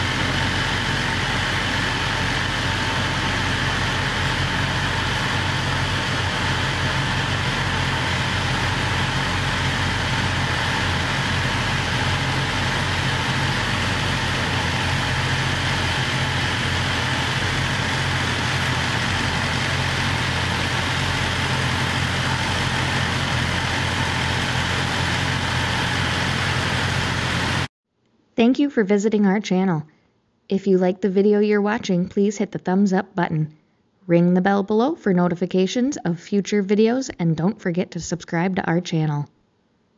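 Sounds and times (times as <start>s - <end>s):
motorcycle engine idling: 0.0s - 27.7s.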